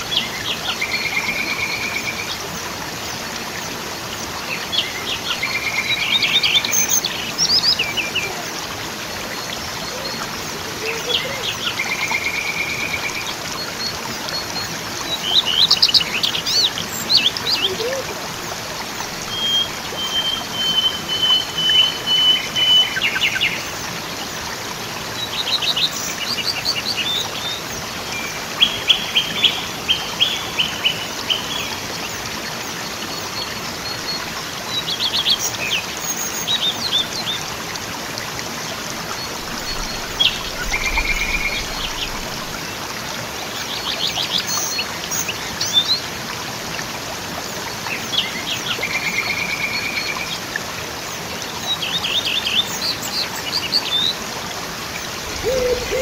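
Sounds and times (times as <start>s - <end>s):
waterfall rushing: 0.0s - 56.0s
small birds chirping and trilling: 38.7s - 42.6s, 55.0s - 56.0s.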